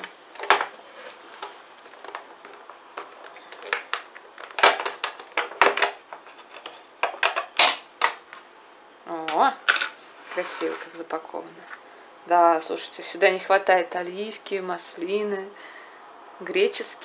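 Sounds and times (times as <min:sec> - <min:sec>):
plastic tub clicks and crackles: 0:01.4 - 0:06.0.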